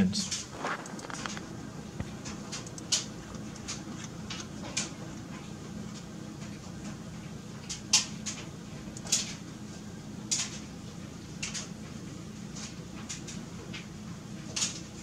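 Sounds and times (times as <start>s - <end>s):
computer mouse clicks: 0.8s - 1.5s, 2.5s - 4.9s.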